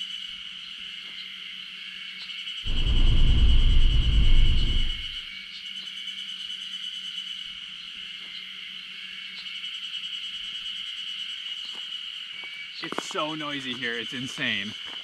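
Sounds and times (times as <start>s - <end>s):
insects droning: 0.0s - 15.0s
loud low rumble: 2.7s - 5.2s.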